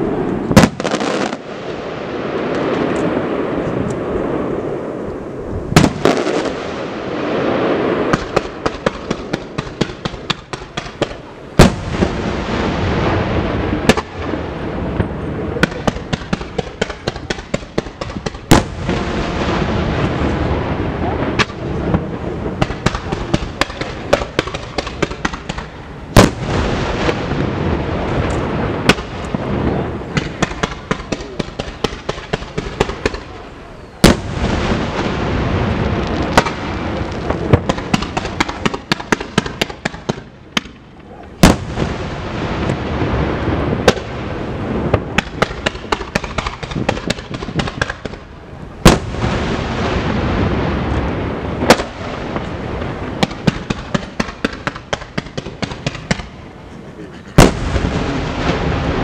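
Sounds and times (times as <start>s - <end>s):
firework booms: 0.0s - 59.0s
firework crackling: 0.0s - 59.0s
continuous rumble: 50.8s - 59.0s.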